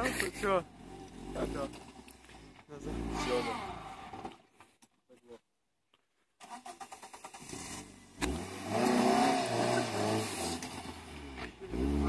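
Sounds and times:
car engine revving hard: 2.8s - 4.3s, 7.0s - 12.0s.

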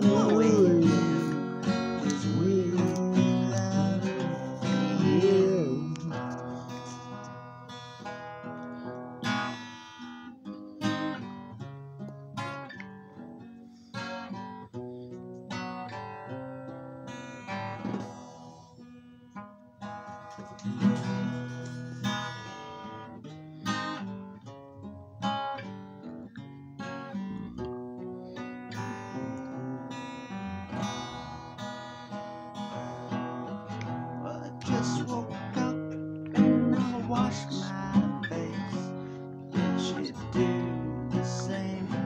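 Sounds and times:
acoustic guitar strumming: 0.0s - 42.0s.

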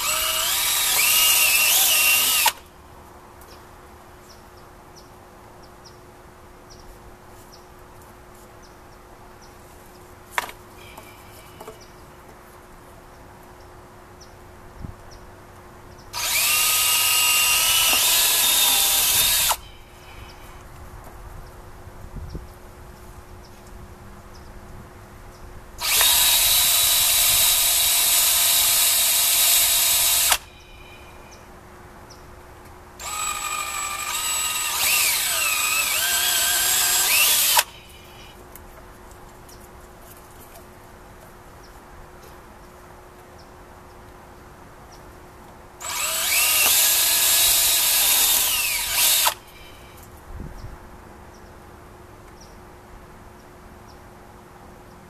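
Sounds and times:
cordless drill boring plastic pipe: 0.0s - 2.6s, 16.2s - 19.6s, 25.8s - 30.4s, 33.0s - 37.7s, 45.8s - 49.4s.

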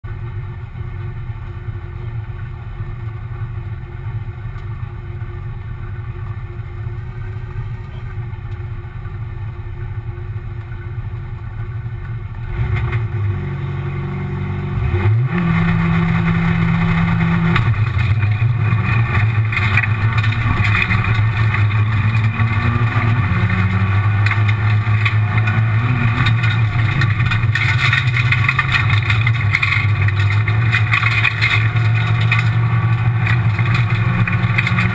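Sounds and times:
road noise on gravel: 0.0s - 34.9s
rally car engine revving: 11.6s - 34.9s.

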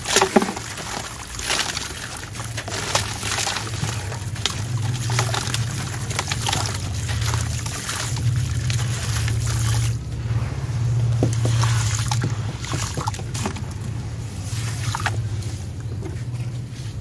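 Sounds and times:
grit pouring into tub: 0.0s - 15.6s
dry cement chunk crunching: 0.0s - 17.0s
low rumble: 2.6s - 17.0s.

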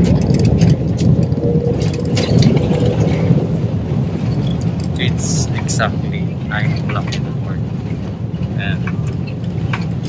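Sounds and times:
jet cabin engine rumble: 0.0s - 10.0s.

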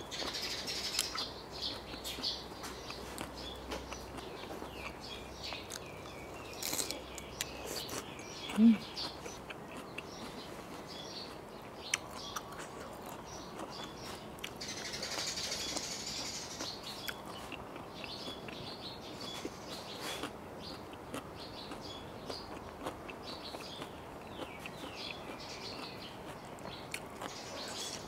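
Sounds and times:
small birds chirping: 0.0s - 28.0s
chewing clicks: 0.9s - 19.4s, 20.1s - 28.0s.

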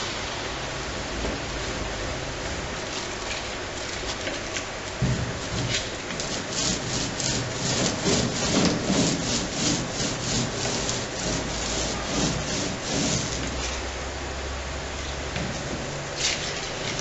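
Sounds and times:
brush scrubbing on wood: 5.6s - 13.7s.

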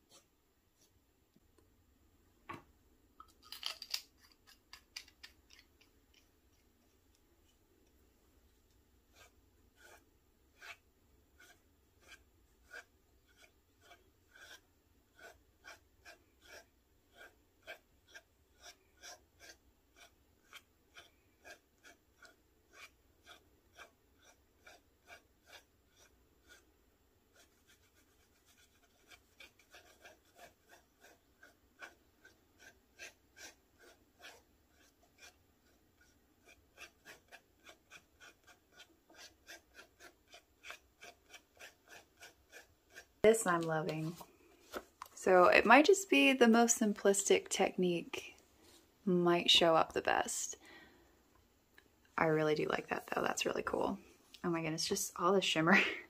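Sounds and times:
pen nib scratching on paper: 9.1s - 26.7s, 27.3s - 44.2s.

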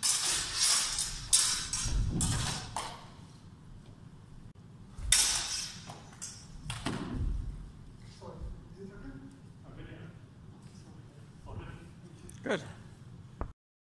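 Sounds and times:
swords clashing: 0.0s - 3.0s, 5.1s - 6.5s
footwork thuds: 6.6s - 8.7s.

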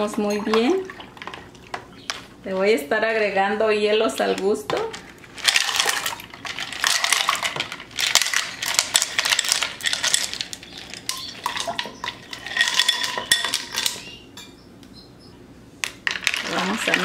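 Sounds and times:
ice cubes clattering into pitcher: 4.7s - 14.1s, 16.0s - 17.0s.

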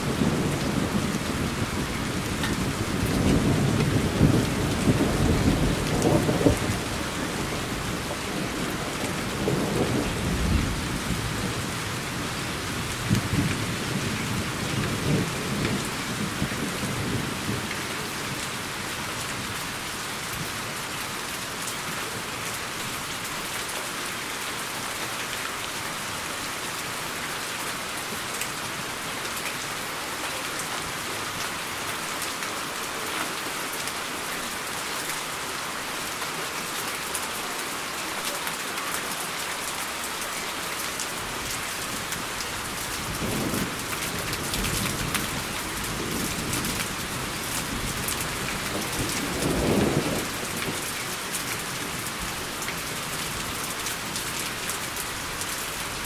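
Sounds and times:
steady rain: 0.0s - 56.0s
thunder rumbling: 43.1s - 50.9s.

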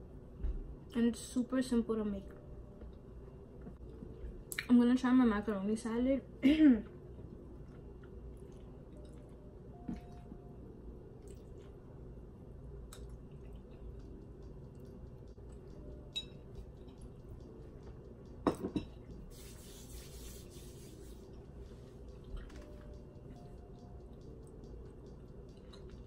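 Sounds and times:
palms rubbing together: 19.3s - 21.8s.

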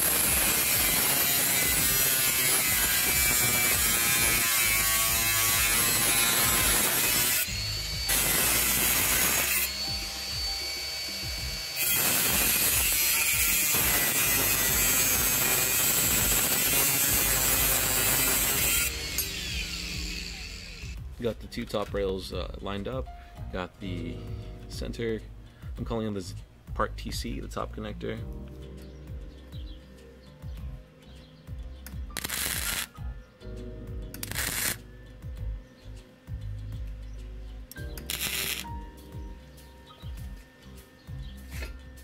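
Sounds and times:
angle grinder cutting steel: 0.0s - 21.0s, 32.1s - 32.9s, 34.2s - 34.8s, 38.0s - 38.8s.

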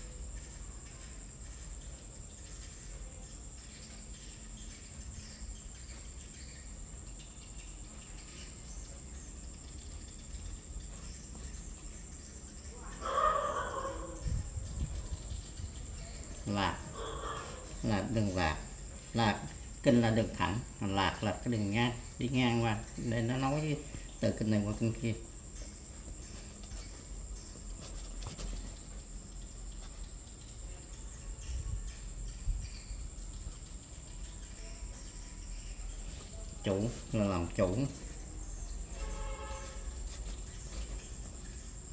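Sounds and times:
steady high-pitched whine: 0.0s - 41.9s
chicken calling: 12.8s - 14.3s, 16.9s - 17.8s
brush swishing on paper: 26.1s - 29.2s, 35.9s - 41.8s.

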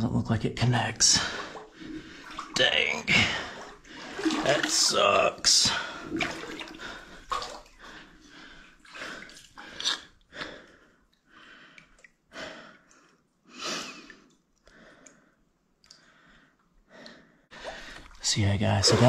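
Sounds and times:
water sloshing from wading: 1.2s - 10.2s, 17.5s - 19.0s
person breathing: 5.7s - 18.2s.

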